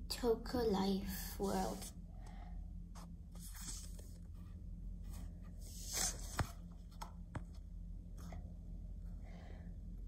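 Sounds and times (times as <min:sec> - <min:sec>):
steady low hum: 0:00.0 - 0:10.0
brushing scrape on screen: 0:05.1 - 0:06.4.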